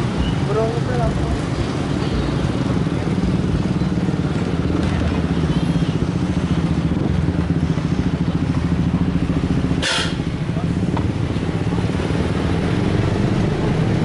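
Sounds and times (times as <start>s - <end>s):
traffic engines passing: 0.0s - 14.0s.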